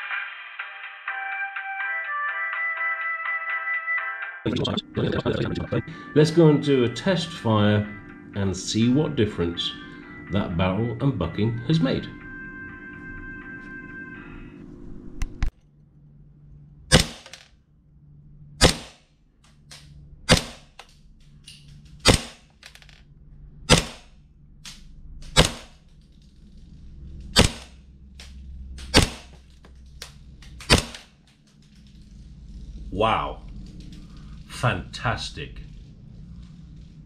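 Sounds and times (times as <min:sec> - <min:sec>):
airsoft pistol shots: 0:16.9 - 0:17.4, 0:18.6 - 0:19.1, 0:20.3 - 0:20.8, 0:22.0 - 0:22.5, 0:23.7 - 0:24.2, 0:25.2 - 0:25.8, 0:27.3 - 0:27.8, 0:28.8 - 0:29.4, 0:30.6 - 0:31.1.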